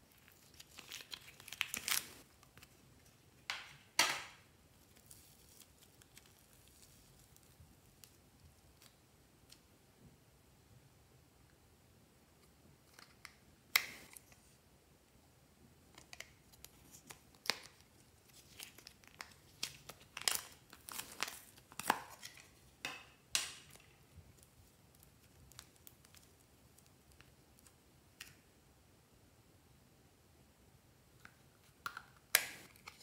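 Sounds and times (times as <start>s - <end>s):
slime crackling and tearing: 0.1s - 2.2s.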